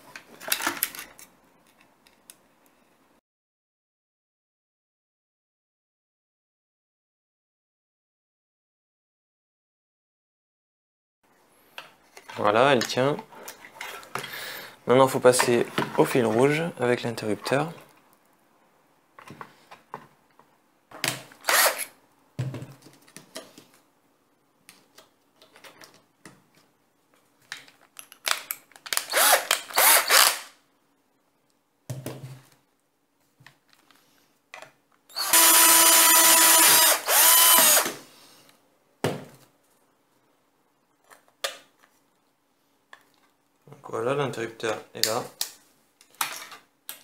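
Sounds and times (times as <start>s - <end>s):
parts clattering and rustling: 0.0s - 2.3s, 11.7s - 14.4s, 15.2s - 16.6s, 24.7s - 29.0s, 45.5s - 47.0s
cordless drill whine: 21.4s - 21.9s, 29.1s - 30.4s, 35.1s - 37.9s.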